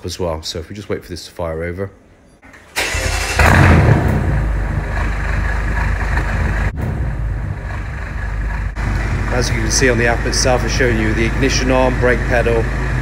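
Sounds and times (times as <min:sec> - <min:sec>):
car engine starting and idling: 0:02.4 - 0:13.0.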